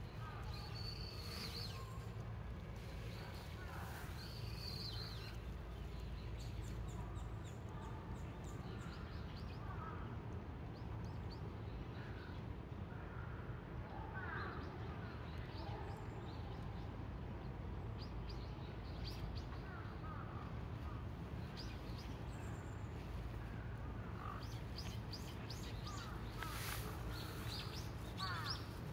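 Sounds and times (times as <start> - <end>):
birds chirping and calling: 24.0 - 28.9.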